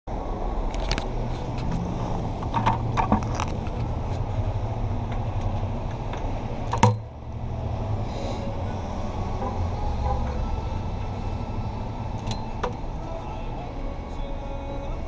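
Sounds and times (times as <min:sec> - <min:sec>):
street traffic rumble: 0:00.1 - 0:15.0
sharp clicks and knocks: 0:02.4 - 0:03.9, 0:05.1 - 0:07.1, 0:12.2 - 0:12.8.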